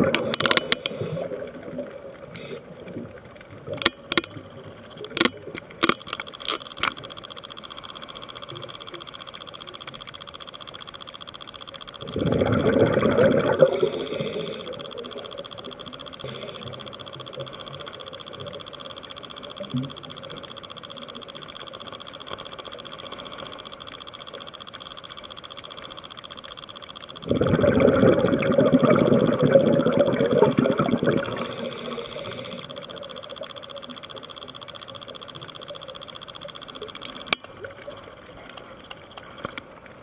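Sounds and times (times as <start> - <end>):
underwater hum and hiss: 0.0 - 40.0
diver's exhaled bubbles: 12.0 - 13.9, 27.2 - 31.4.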